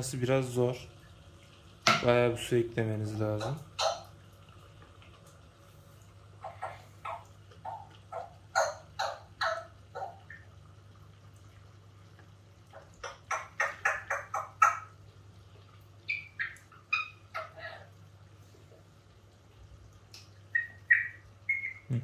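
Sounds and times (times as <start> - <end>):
aquarium filter gurgling: 0.0 - 22.0
faint motor hum: 0.0 - 22.0.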